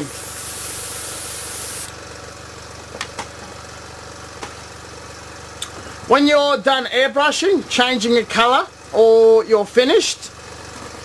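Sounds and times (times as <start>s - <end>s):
airbrush spraying air hiss: 0.0s - 1.9s
compressor humming: 0.0s - 11.0s.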